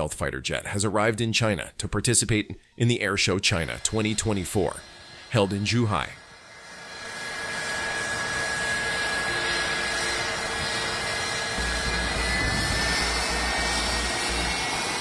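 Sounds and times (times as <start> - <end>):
jet engines rushing and whining: 2.9 - 15.0
low rumble: 10.4 - 15.0.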